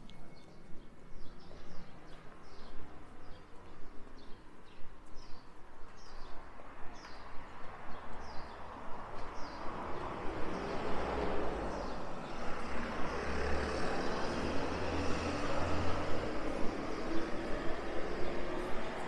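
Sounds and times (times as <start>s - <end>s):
vehicle engine hum and road noise: 6.4s - 19.0s.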